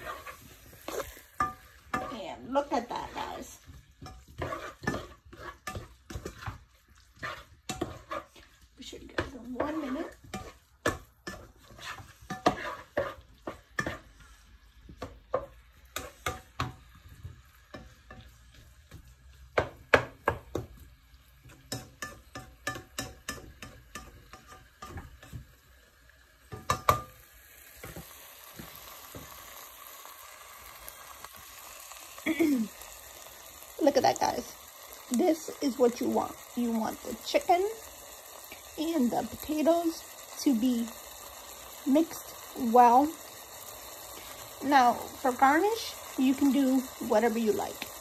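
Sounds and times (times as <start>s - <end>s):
utensil knocking and scraping a pan: 0.0s - 20.8s, 21.4s - 25.6s, 26.5s - 27.2s
meat sizzling: 0.0s - 48.0s.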